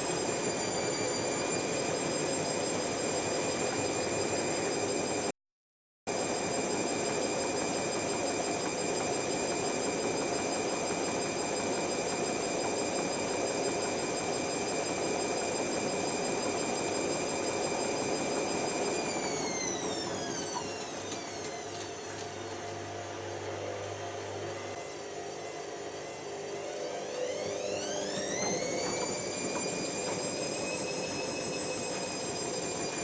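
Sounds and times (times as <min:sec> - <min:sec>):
washing machine motor whine: 0:00.0 - 0:05.3, 0:06.1 - 0:33.0
washing machine drum rushing: 0:28.1 - 0:33.0.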